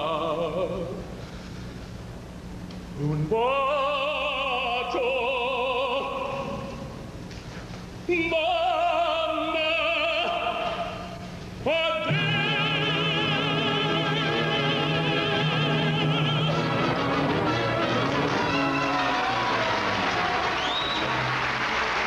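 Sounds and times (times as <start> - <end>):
operatic tenor singing: 0.0 - 1.0, 3.0 - 6.8, 8.1 - 19.1
orchestra: 11.8 - 22.0.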